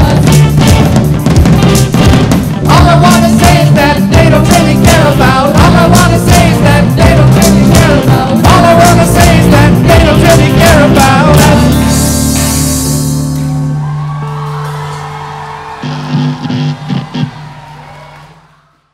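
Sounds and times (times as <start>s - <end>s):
drum hits: 0.0s - 11.5s
rock band playing: 0.0s - 17.9s
people singing: 2.7s - 12.0s.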